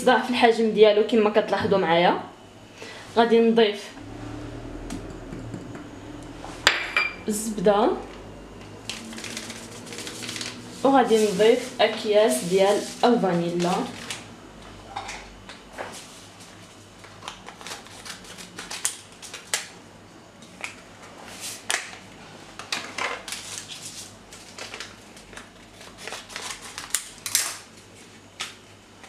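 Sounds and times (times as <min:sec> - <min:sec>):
paper sachets crinkling: 0:08.8 - 0:14.3, 0:17.0 - 0:19.8, 0:22.6 - 0:27.7.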